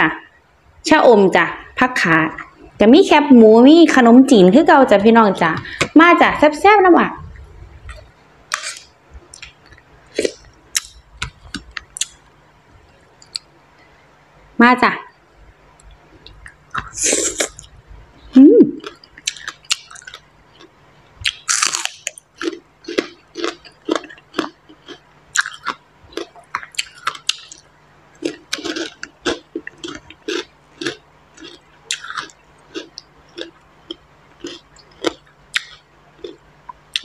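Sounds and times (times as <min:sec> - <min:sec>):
crunchy bites: 0:18.8 - 0:37.0.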